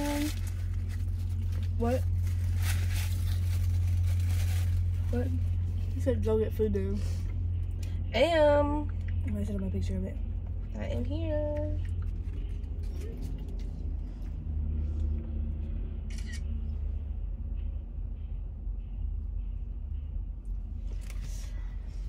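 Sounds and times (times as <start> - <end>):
food packaging crinkling: 0.0 - 5.5
low car cabin rumble: 0.0 - 22.0.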